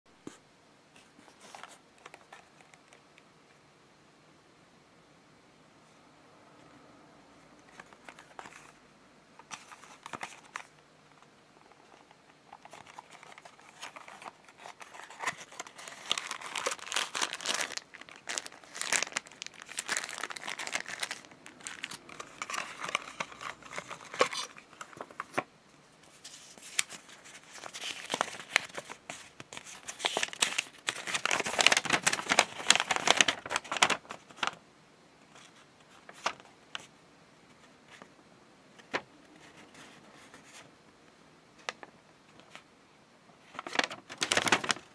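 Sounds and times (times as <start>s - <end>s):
cardboard and plastic crinkling: 9.4s - 10.8s, 11.6s - 25.5s, 26.1s - 34.6s, 35.3s - 36.9s, 43.4s - 44.9s.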